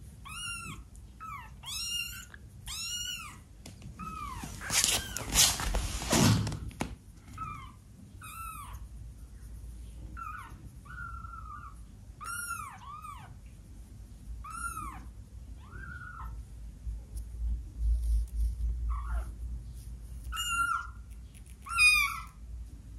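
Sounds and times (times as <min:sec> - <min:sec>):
kitten mewing: 0:20.2 - 0:22.4.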